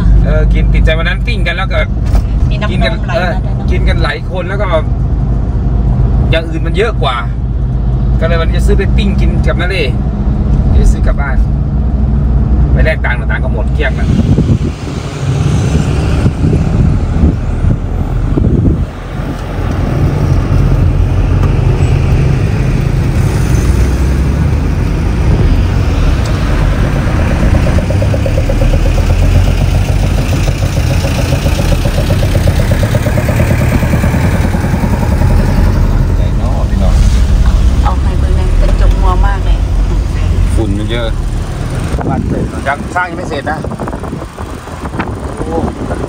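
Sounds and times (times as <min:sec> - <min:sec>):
van engine and tyre drone: 0:00.0 - 0:46.0.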